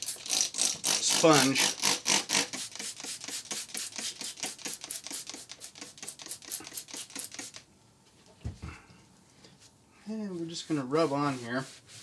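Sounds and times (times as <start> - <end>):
spray bottle squirts: 0.0 - 0.7, 1.8 - 7.6.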